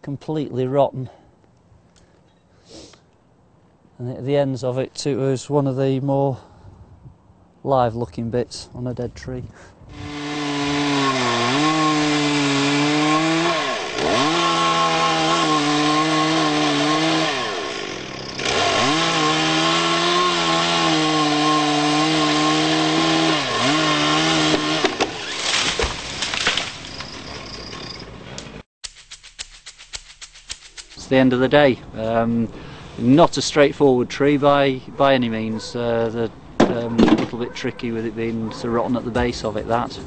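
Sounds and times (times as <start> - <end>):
chainsaw cutting at high revs: 9.9 - 26.5.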